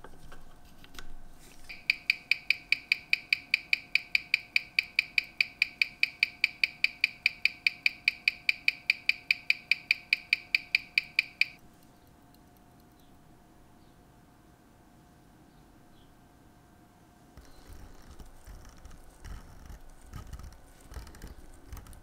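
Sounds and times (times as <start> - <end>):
watch ticking: 1.7 - 11.6.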